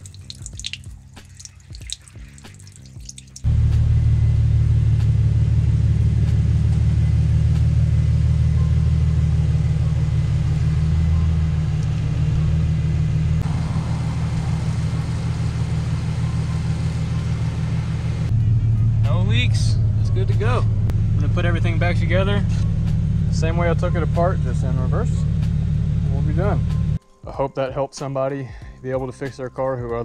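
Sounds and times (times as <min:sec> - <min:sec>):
garden hose spraying water: 0:00.0 - 0:03.5, 0:13.4 - 0:18.2
car engine idling: 0:03.4 - 0:27.0.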